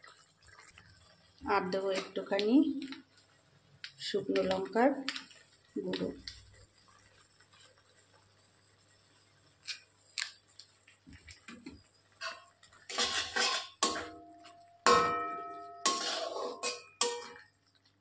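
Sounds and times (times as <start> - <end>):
metal spatula scraping pan: 12.2 - 17.5
spatula knocking ringing pan: 12.2 - 17.5.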